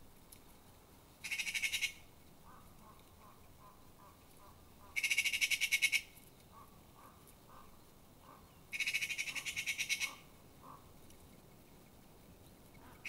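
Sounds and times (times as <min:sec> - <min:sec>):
magpie rattling chatter: 0:01.2 - 0:02.6, 0:04.9 - 0:06.1, 0:08.7 - 0:10.3.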